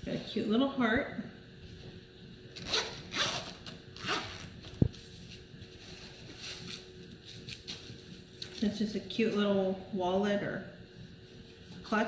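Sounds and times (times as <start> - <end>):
zipper being pulled open: 2.6 - 4.6.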